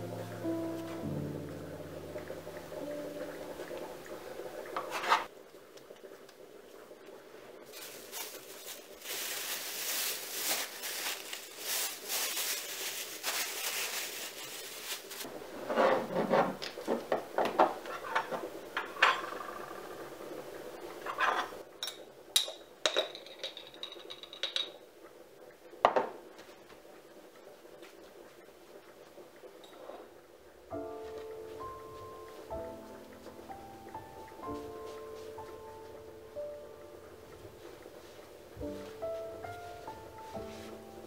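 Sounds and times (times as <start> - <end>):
plastic bag rustling: 7.6 - 15.4.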